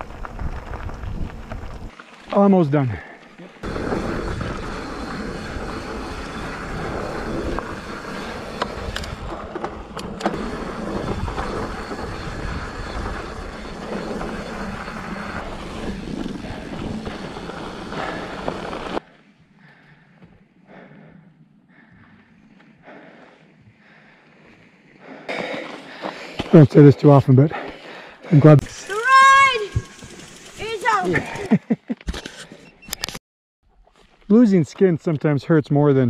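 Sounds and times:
wind on microphone: 0.0 - 1.9
knobby tyres rumbling on gravel: 0.0 - 19.1, 28.4 - 31.5
bike rattling over rocks: 28.6 - 31.5.

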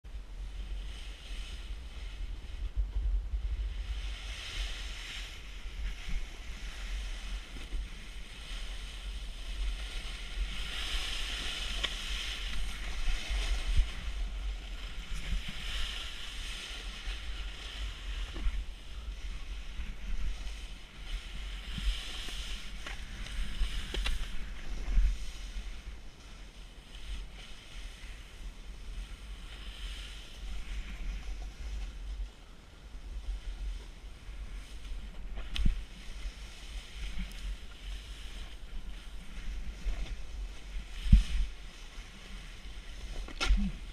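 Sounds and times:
wind buffeting microphone: 0.0 - 43.9
snowboard hissing over snow: 3.5 - 31.7.

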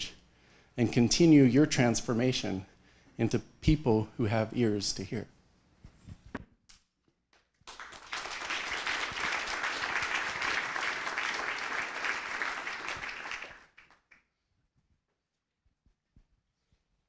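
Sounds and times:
audience applauding: 7.6 - 14.2.

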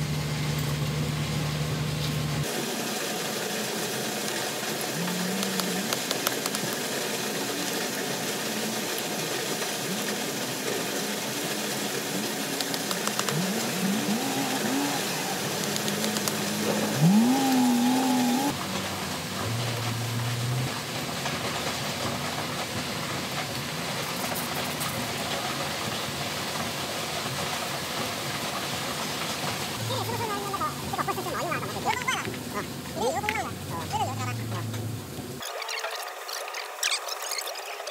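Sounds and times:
engine revving: 0.0 - 21.2.

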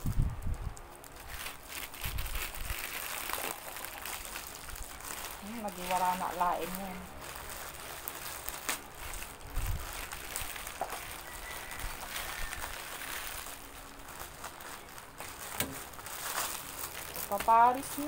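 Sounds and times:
plastic bag crinkling and tearing: 0.0 - 18.0.

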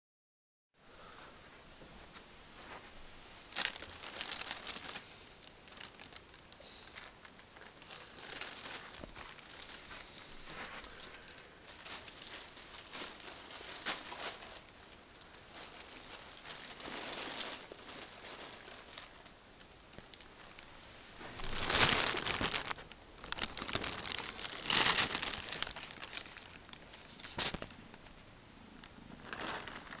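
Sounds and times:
plastic bag crinkling and rustling: 3.4 - 28.1, 29.1 - 30.0.

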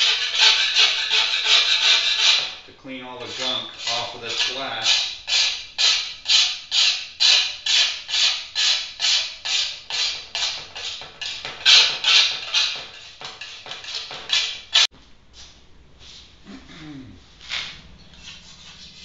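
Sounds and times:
metal scraper scraping glass: 0.0 - 2.6, 3.2 - 14.9.

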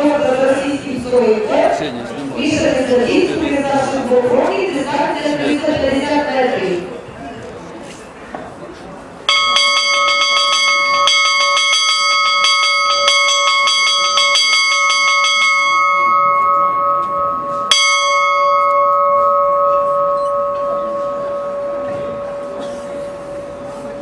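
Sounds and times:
large bell ringing: 9.2 - 24.0.

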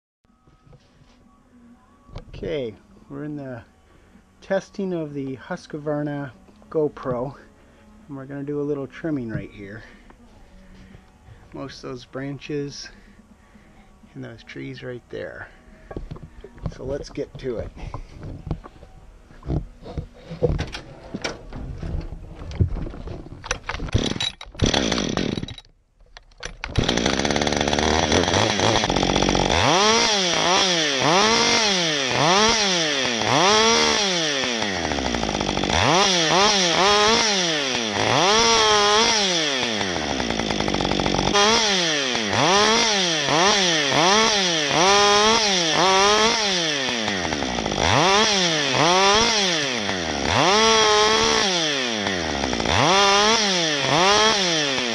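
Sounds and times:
chainsaw revving: 23.9 - 25.6, 26.7 - 54.9.

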